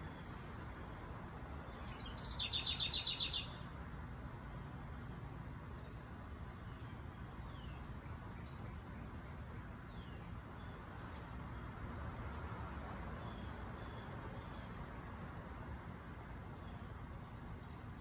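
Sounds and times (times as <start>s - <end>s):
bird chirps: 1.7s - 3.6s.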